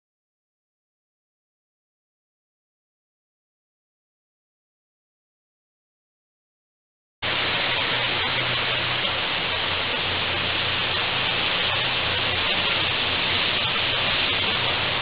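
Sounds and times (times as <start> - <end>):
high-pressure water jet hissing: 7.2 - 15.0
low steady hum: 7.2 - 15.0.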